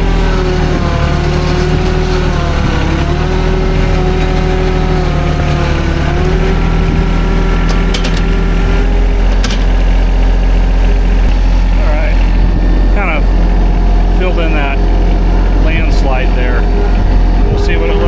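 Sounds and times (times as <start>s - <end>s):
tractor diesel engine running: 0.0s - 18.0s
sharp metal clanks: 9.2s - 9.9s.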